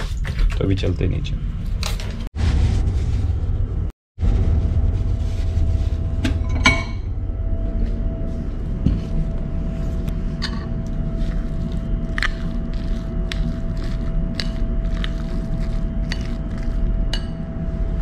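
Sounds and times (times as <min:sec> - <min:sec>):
ship machinery hum: 0:04.4 - 0:18.0.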